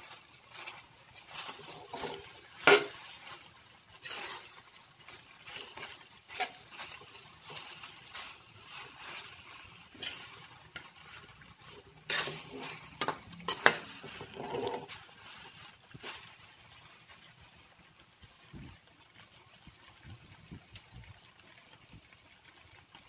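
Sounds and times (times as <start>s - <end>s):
metal spoon scraping a wok: 0.0s - 16.4s.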